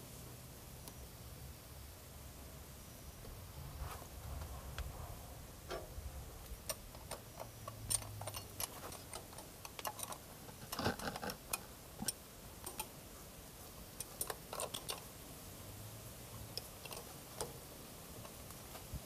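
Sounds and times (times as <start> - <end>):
metal and plastic clicks: 6.6 - 12.9, 14.0 - 15.0.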